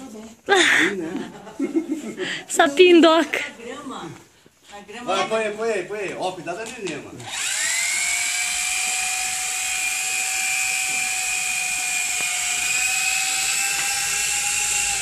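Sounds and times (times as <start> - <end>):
toy helicopter motor whine: 7.2 - 15.0.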